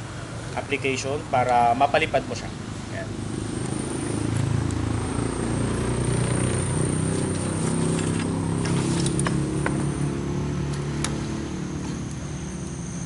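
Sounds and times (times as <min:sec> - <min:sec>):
low engine hum: 0:02.2 - 0:13.0.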